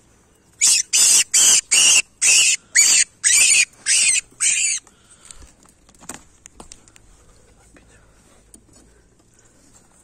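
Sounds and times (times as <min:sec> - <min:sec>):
rabbit screaming: 0:00.6 - 0:04.8.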